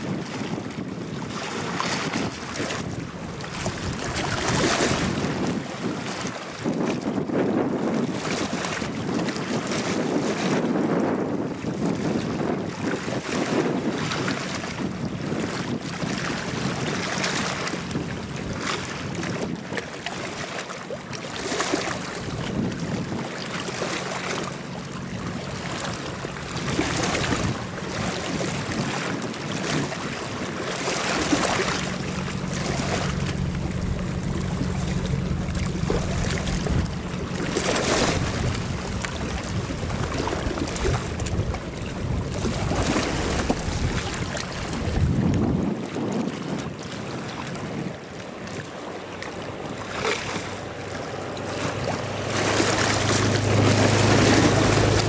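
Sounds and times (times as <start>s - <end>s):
water wash: 0.0s - 55.0s
wind gusts on microphone: 0.0s - 55.0s
ferry engines droning: 31.3s - 42.5s, 49.1s - 55.0s.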